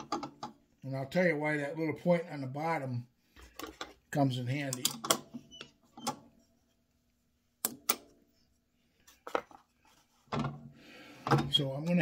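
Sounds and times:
hard objects clicking and knocking: 0:00.0 - 0:00.6
person speaking: 0:00.8 - 0:05.1, 0:11.3 - 0:12.0.

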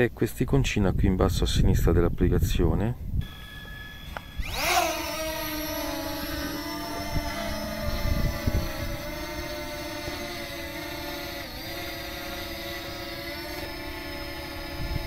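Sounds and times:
drone propellers whining: 0:03.2 - 0:15.0.

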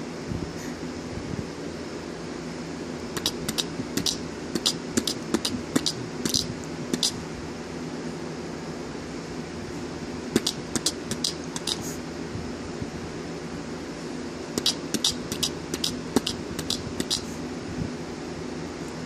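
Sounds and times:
room hum: 0:00.0 - 0:19.0
quick sharp clicks: 0:03.2 - 0:07.2, 0:10.4 - 0:11.8, 0:14.6 - 0:17.2.

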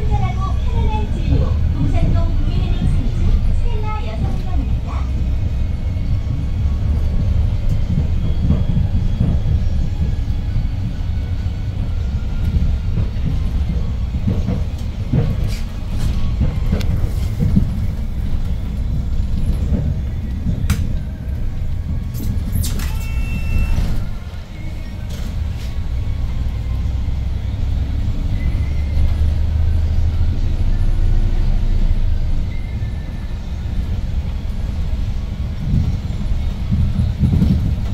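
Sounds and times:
bus engine rumble: 0:00.0 - 0:37.9
road noise: 0:00.0 - 0:37.9
rattles and knocks: 0:11.8 - 0:22.4
brief high squeal: 0:22.2 - 0:24.9.

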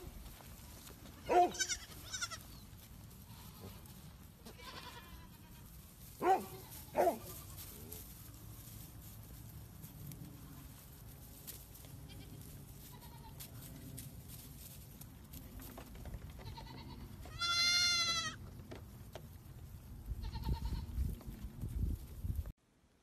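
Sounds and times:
goat kid bleating: 0:01.1 - 0:05.8, 0:12.0 - 0:13.6, 0:16.4 - 0:18.5, 0:20.2 - 0:21.0.

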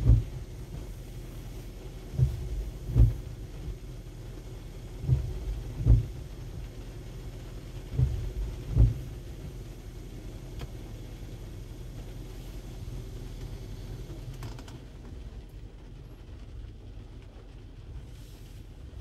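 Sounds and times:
dull low thumps: 0:00.0 - 0:11.0
heavy rain on car: 0:00.0 - 0:19.0
steady low rumble: 0:00.0 - 0:19.0.

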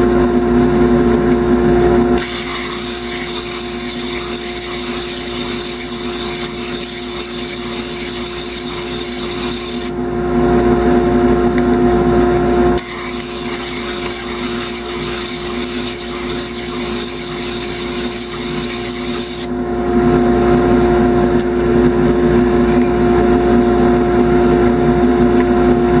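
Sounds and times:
wood sanding hissing scrape: 0:02.2 - 0:09.9, 0:12.8 - 0:19.5
lathe motor hum: 0:02.2 - 0:10.0, 0:12.8 - 0:19.5.

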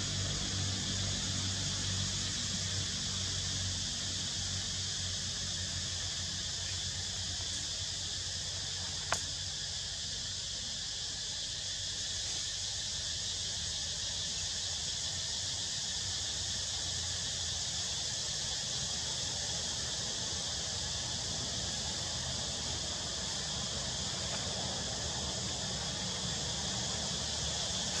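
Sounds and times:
high-pitched insect chorus: 0:00.0 - 0:28.0
sharp click: 0:09.0 - 0:09.3.

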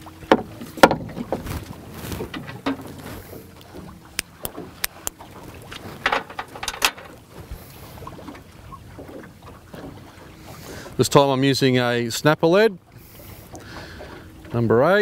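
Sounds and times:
water washing around boat: 0:00.0 - 0:15.0.

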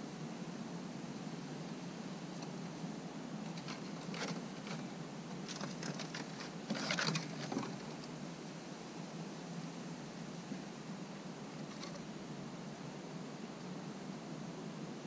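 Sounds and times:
low hum and hiss: 0:00.0 - 0:15.0
squirrel claws scratching: 0:03.5 - 0:08.1.

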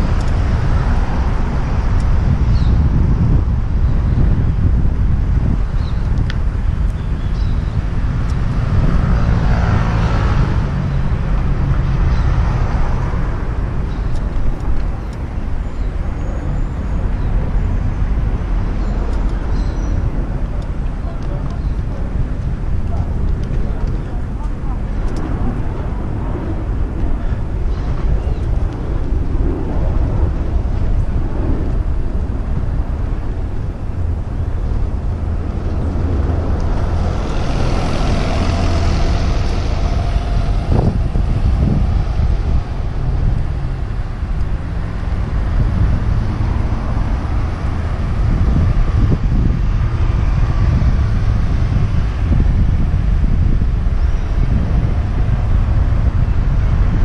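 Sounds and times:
passing traffic: 0:00.0 - 0:57.0
wind and road noise rumble: 0:00.0 - 0:57.0
bus passing close: 0:32.6 - 0:57.0.

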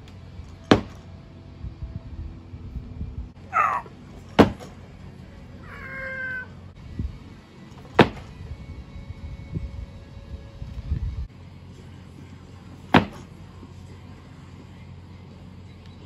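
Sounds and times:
barbell landing on rubber mat: 0:13.0 - 0:13.3
feet landing on rubber mat: 0:13.0 - 0:13.3.

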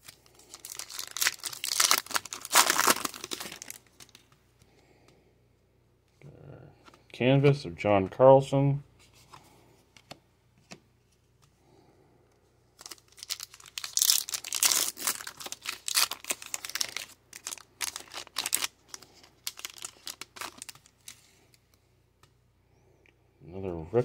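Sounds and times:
foil wrapper tearing and crinkling: 0:00.0 - 0:04.2, 0:12.8 - 0:21.2.

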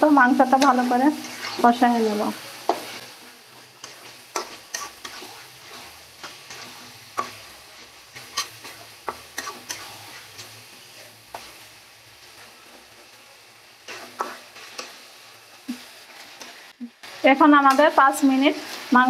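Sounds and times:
chicken sizzling in oil: 0:00.0 - 0:19.0
spatula scraping pan: 0:00.4 - 0:11.7, 0:13.8 - 0:15.1.

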